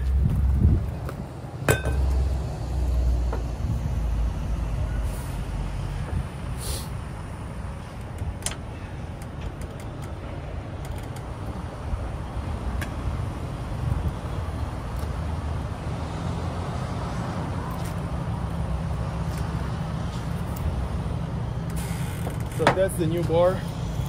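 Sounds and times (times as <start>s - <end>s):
low vehicle rumble: 0.0s - 24.0s
short air hisses: 6.6s - 7.0s.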